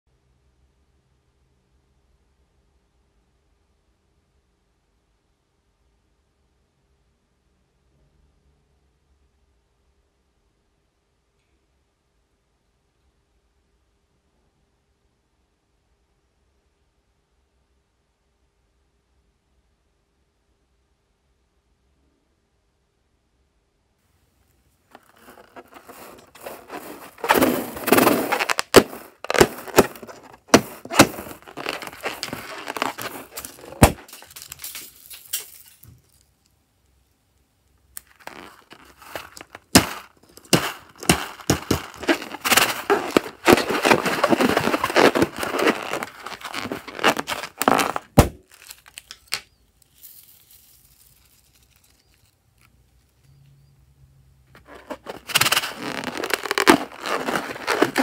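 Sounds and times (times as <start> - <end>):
rubber balloons crinkling: 24.9 - 35.4, 38.0 - 49.4, 54.6 - 58.0
beads clicking and knocking: 24.9 - 36.2, 38.0 - 52.7, 54.6 - 58.0.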